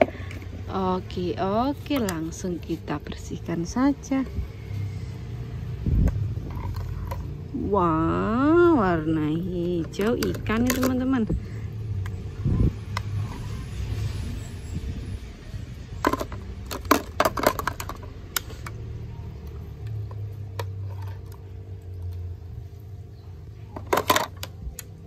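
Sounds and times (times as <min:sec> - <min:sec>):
plastic toys clattering: 0:06.0 - 0:07.4, 0:09.6 - 0:11.4, 0:16.0 - 0:18.8, 0:23.7 - 0:25.0
toy dropping into plastic bucket: 0:16.0 - 0:18.1, 0:23.8 - 0:24.5.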